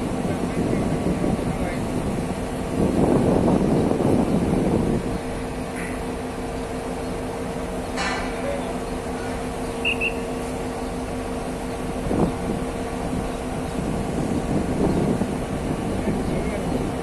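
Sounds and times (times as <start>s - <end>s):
construction machinery humming: 0.0s - 17.0s
quick high beeps: 9.8s - 10.3s.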